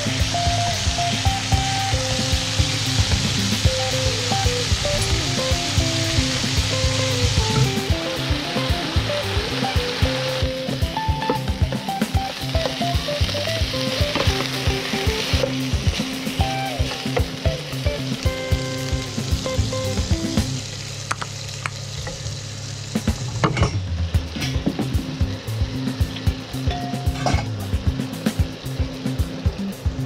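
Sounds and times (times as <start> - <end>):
meat sizzling in a pan: 0.0 - 23.4.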